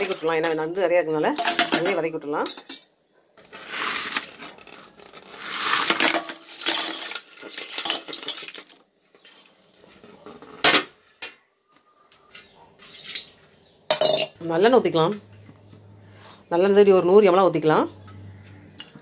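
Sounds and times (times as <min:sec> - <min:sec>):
crab shells clattering on metal: 0:00.0 - 0:02.9, 0:05.4 - 0:09.4.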